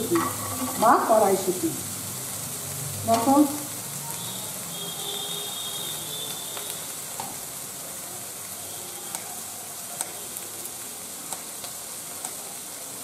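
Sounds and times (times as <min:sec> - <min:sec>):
oil popping: 0:00.0 - 0:01.2
vegetables sizzling in oil: 0:00.0 - 0:13.0.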